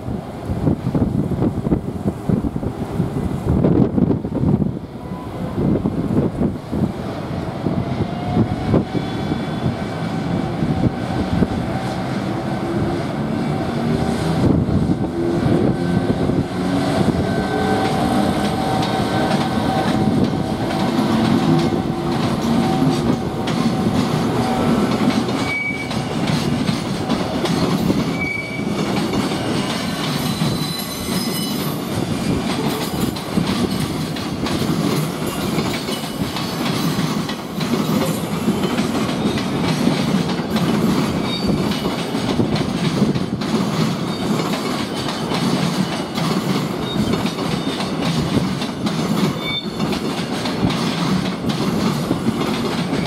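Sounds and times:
wheels clacking over rail joints: 17.2 - 53.0
high wheel squeals: 25.4 - 26.1, 28.1 - 28.8, 29.4 - 31.8, 41.2 - 41.9, 49.4 - 49.8.

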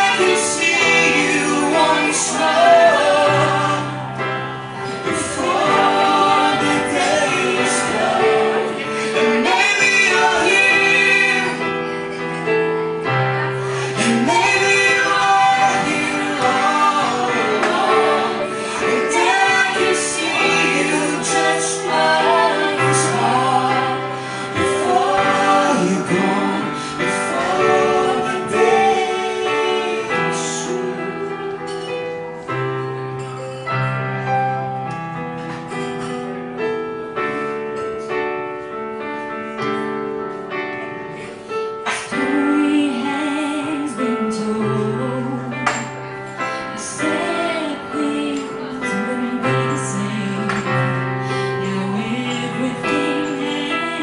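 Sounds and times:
woman singing a slow ballad: 13.8 - 31.9, 41.9 - 54.0.

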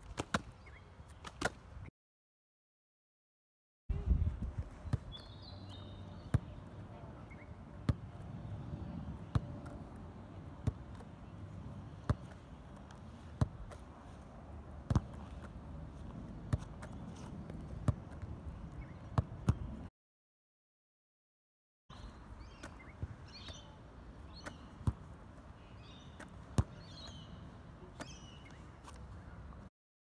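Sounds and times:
football bouncing on turf: 12.0 - 13.9, 14.8 - 18.3, 24.4 - 25.1, 26.2 - 27.2.

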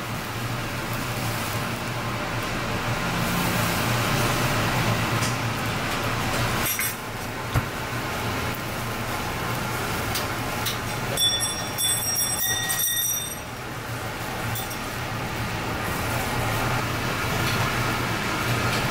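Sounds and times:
clams sizzling on a grill: 0.0 - 18.9
fire crackling: 0.0 - 18.9
high metallic ringing: 11.1 - 13.6, 14.5 - 14.9.

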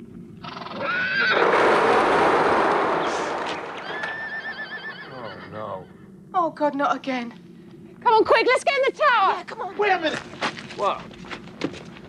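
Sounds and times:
horse whinnying: 0.4 - 1.5, 3.8 - 5.9
loud rushing noise: 1.4 - 4.6.

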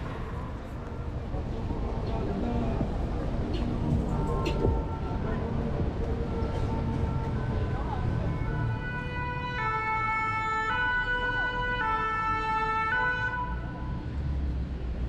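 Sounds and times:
low traffic rumble: 0.0 - 15.0
two-tone siren: 8.1 - 13.8.

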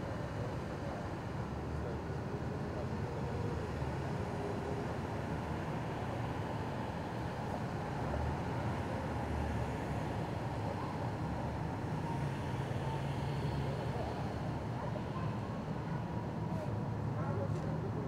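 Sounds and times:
city street traffic rumble: 0.0 - 18.0.

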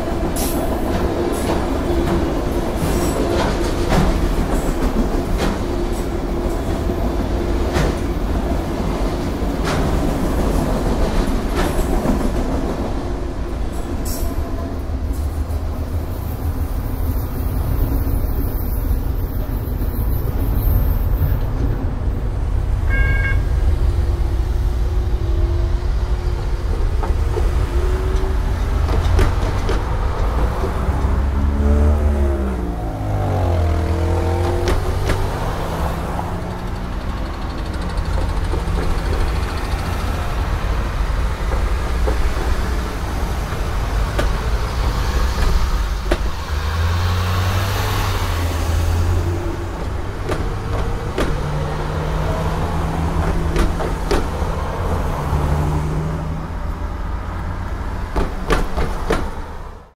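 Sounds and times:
car engines accelerating: 27.6 - 41.2
sharp knocks: 58.1 - 59.4.

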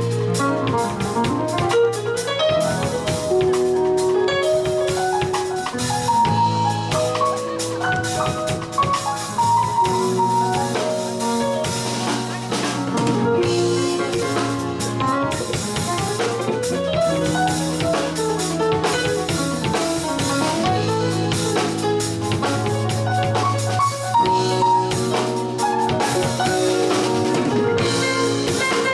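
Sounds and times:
bass guitar: 0.0 - 28.9
drum kit: 0.0 - 28.9
electric guitar: 0.0 - 28.9.

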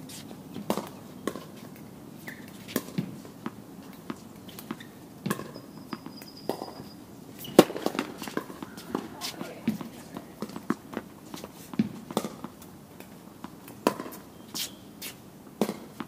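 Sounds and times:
tennis balls struck with rackets: 0.6 - 6.8, 7.4 - 14.7, 15.6 - 16.0
footsteps on court: 7.4 - 12.6.

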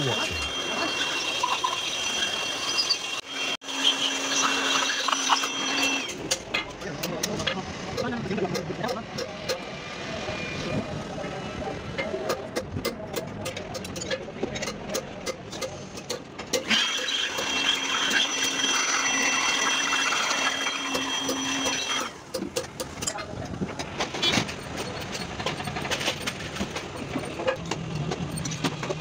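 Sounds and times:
power tool whining: 0.0 - 6.4, 16.5 - 22.2
metal clicks and taps: 12.3 - 16.6.

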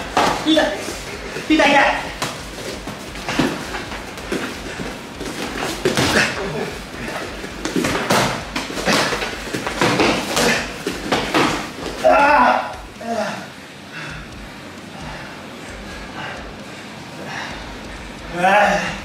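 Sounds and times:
boxing punches thudding: 0.0 - 13.0.

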